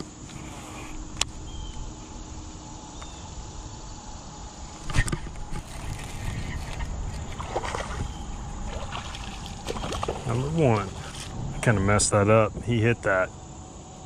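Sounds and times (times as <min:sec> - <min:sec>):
lure splashing in water: 0:05.6 - 0:11.3.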